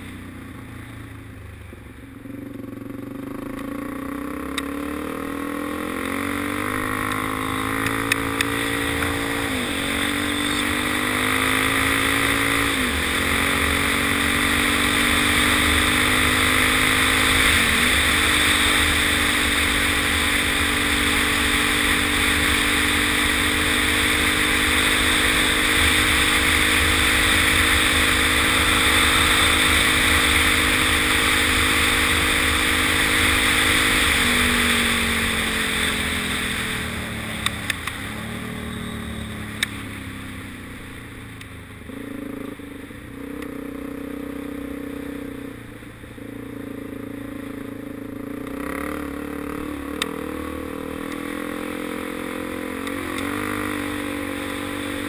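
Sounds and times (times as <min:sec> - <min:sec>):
motorcycle engine running: 0:00.0 - 0:55.0
steady rushing noise: 0:04.7 - 0:43.2.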